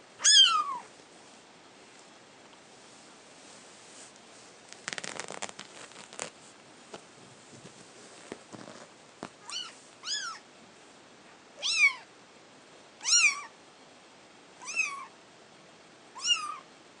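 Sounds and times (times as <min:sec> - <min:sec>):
kitten meowing: 0:00.2 - 0:00.9, 0:09.4 - 0:10.4, 0:11.6 - 0:12.1, 0:13.0 - 0:13.5, 0:14.6 - 0:15.1, 0:16.2 - 0:16.6.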